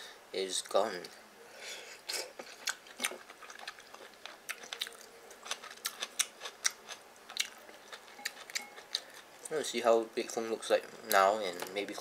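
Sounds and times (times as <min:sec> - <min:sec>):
person chewing noodles: 0:02.0 - 0:09.4.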